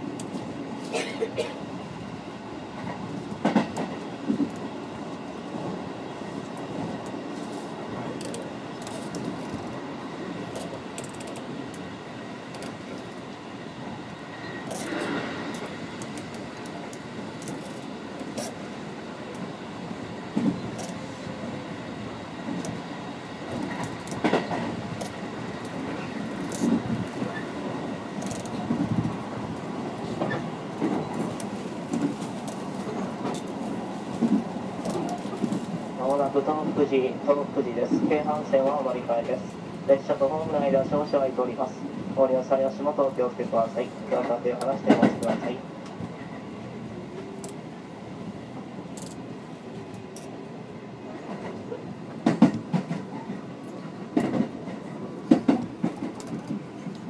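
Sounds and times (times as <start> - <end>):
train running rumble: 0.0 - 50.4
wheels clacking on track: 2.8 - 4.7, 23.4 - 40.1, 44.0 - 46.3, 51.2 - 57.0.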